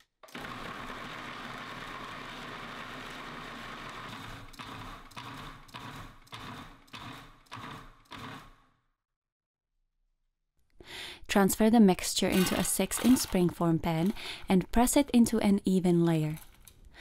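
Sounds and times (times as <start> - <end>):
food processor chopping: 0.0 - 8.6, 12.3 - 14.2.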